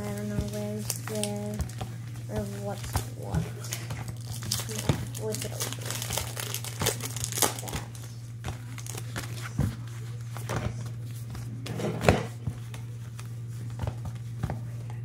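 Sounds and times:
foil wrappers crinkling: 0.0 - 11.1
steady low hum: 0.0 - 15.0.

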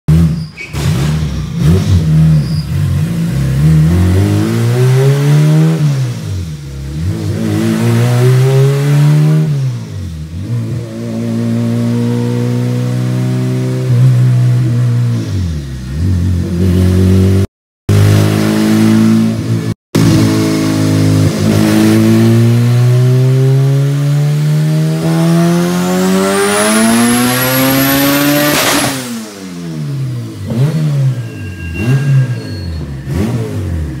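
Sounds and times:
car engine revving at full throttle: 3.0 - 31.2, 33.1 - 34.0
high turbo whistle: 31.1 - 33.1.

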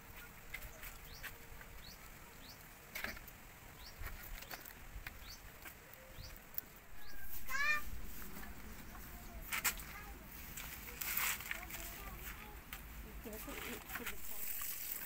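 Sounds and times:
leaves crackling and rustling: 0.0 - 15.0
small bird chirping: 0.2 - 10.2.

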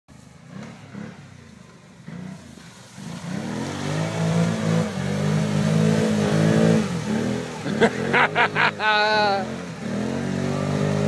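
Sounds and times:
atv engine revving: 0.4 - 11.0.

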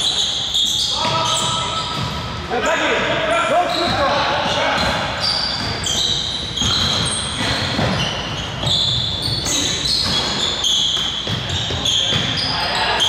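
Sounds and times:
sneakers squeaking on court: 0.0 - 2.5, 3.2 - 13.0
basketball bouncing: 1.0 - 2.4, 3.8 - 12.4.

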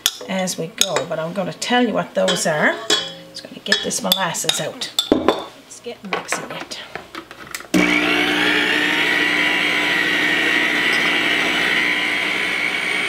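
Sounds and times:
stand mixer motor whine: 7.8 - 13.0.

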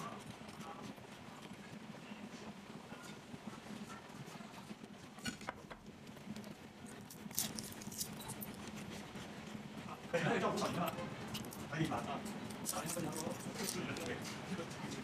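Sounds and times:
crunching spring roll: 6.8 - 9.2, 10.7 - 14.8.

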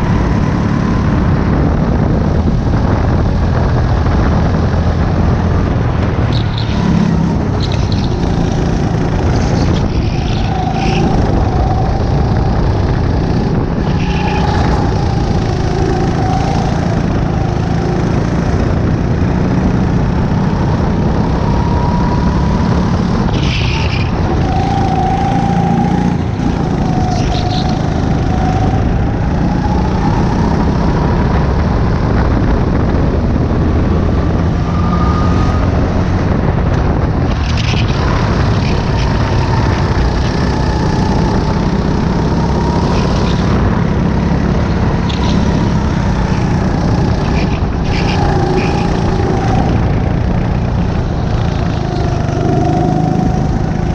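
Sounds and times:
racing kart engine: 0.0 - 53.9.

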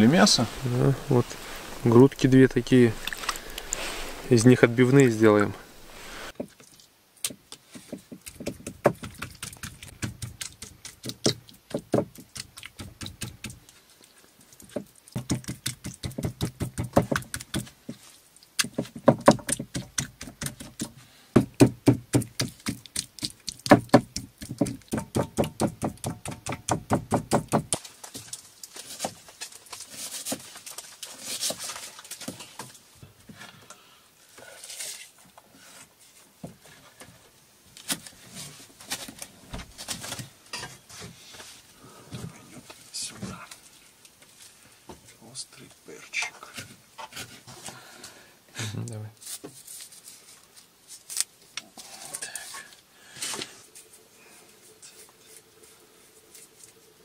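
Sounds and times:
soft hiss: 0.0 - 8.2, 27.8 - 57.0
meat being pounded: 15.2 - 17.7, 18.6 - 27.8.

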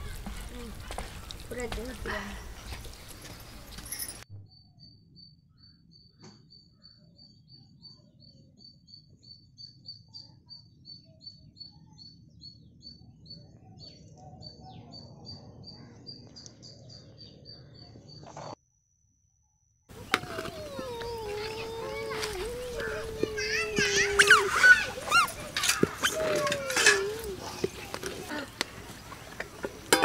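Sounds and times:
faint birdsong: 0.0 - 18.6.

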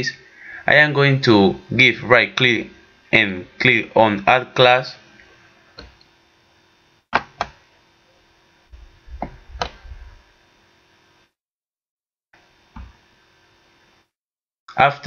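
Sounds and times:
faint steady hum: 0.0 - 11.3.

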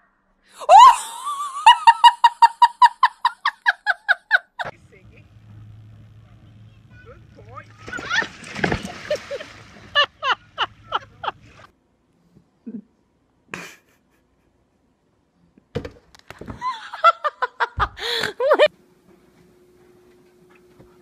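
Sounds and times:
person laughing: 0.6 - 4.7, 9.0 - 11.7, 13.5 - 14.4, 16.6 - 18.7
dog splashing into water: 7.8 - 10.0.

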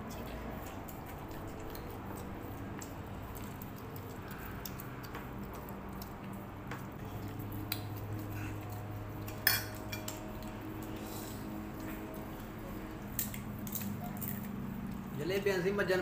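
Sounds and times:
steady low hum: 0.0 - 16.0
plates and cutlery clicking: 9.2 - 10.2.

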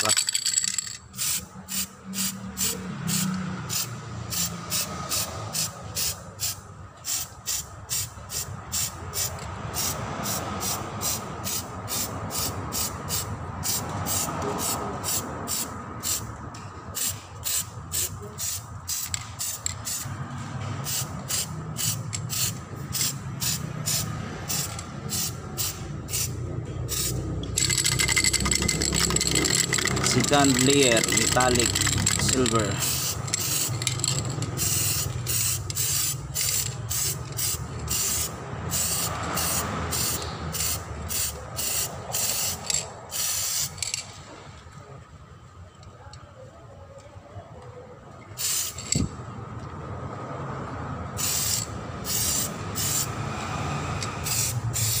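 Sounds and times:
aerosol spray can hissing: 54.2 - 55.0.

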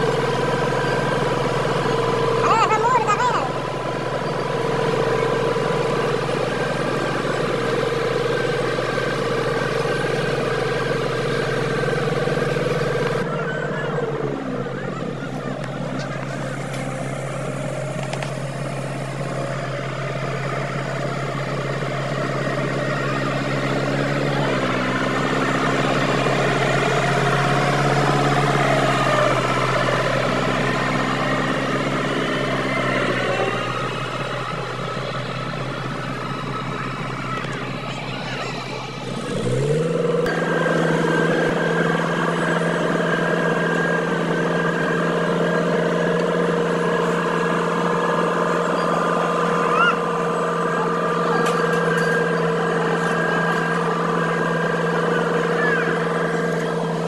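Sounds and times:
road roller engine running: 0.0 - 57.0.

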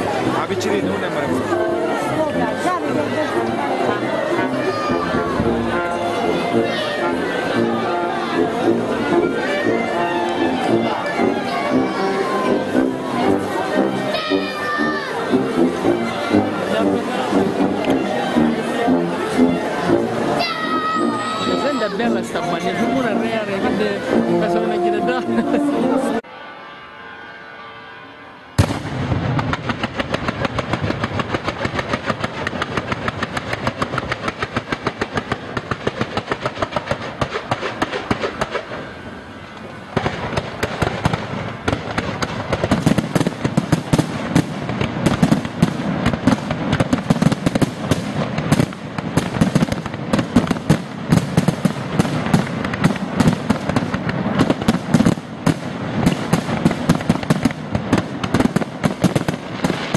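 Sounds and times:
fireworks exploding: 28.6 - 59.9.

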